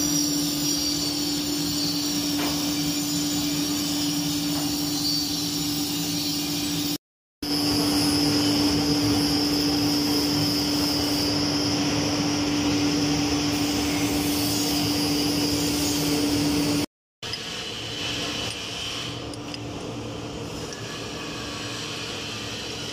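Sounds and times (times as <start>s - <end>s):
lathe humming with high whine: 0.0s - 16.9s.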